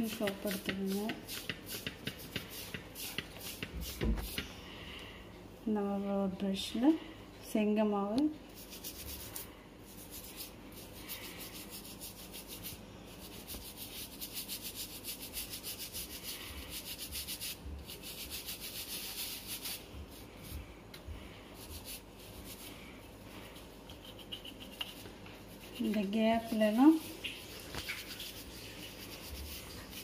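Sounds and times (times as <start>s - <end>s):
toothbrush scrubbing metal mesh: 8.6s - 19.9s, 23.8s - 30.0s.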